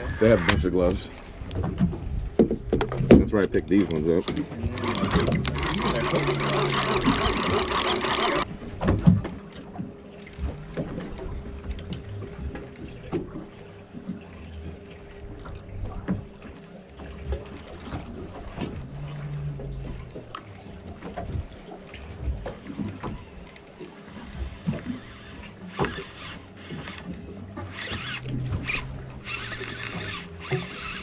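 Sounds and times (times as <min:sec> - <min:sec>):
water: 0:00.0 - 0:31.0
fishing reel clicks and knocks: 0:03.8 - 0:08.5, 0:25.6 - 0:31.0.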